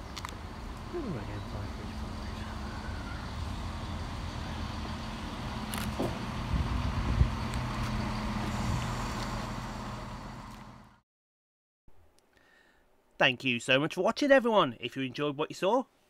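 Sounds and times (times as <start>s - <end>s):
diesel train engine droning: 0.0s - 11.0s.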